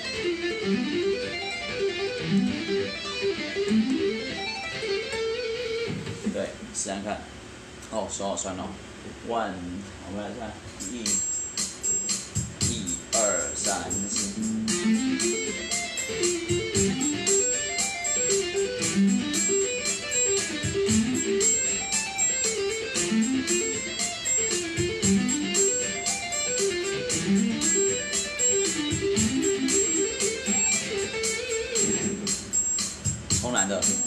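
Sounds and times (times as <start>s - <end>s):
electric guitar tapping arpeggios: 0.0s - 6.4s, 12.3s - 34.0s
steady ticking beat: 10.8s - 34.0s.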